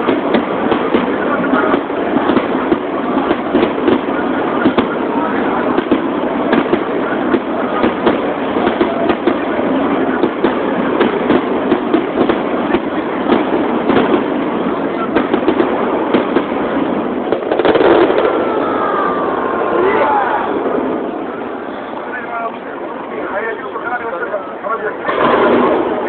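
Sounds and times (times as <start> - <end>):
firework shells bursting: 0.0 - 19.5
sharp firework bangs: 0.0 - 22.0, 25.0 - 26.0.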